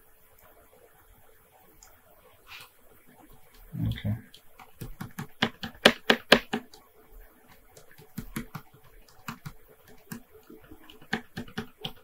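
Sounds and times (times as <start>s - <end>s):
keyboard and mouse clicking: 3.3s - 6.8s, 7.5s - 12.0s.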